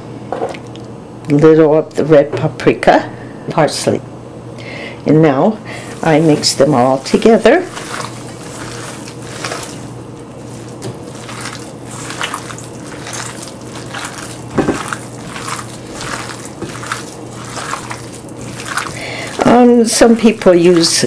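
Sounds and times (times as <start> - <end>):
hands squelching wet meat mix: 5.7 - 21.0.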